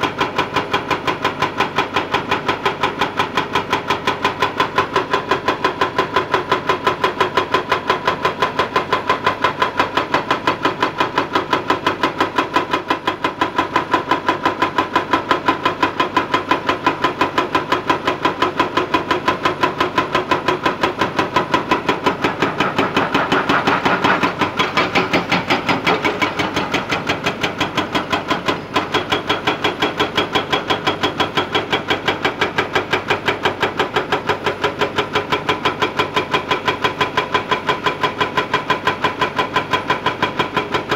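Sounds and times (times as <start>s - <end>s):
hydraulic breaker hammer pounding rock: 0.0s - 40.9s
excavator engine running: 18.3s - 40.8s.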